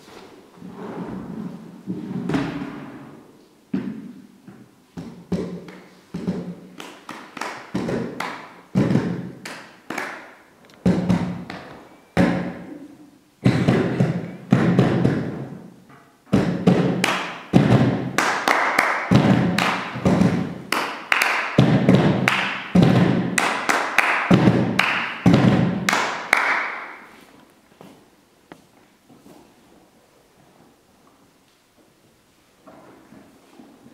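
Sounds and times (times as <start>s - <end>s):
hands drumming on plastic crates: 19.1s - 20.6s, 21.6s - 23.4s.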